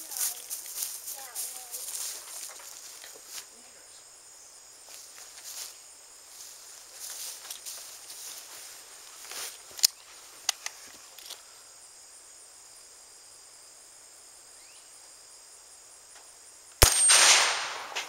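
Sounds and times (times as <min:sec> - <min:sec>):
insects droning: 0:00.0 - 0:18.0
rifle shot hitting steel plate: 0:16.8 - 0:18.0.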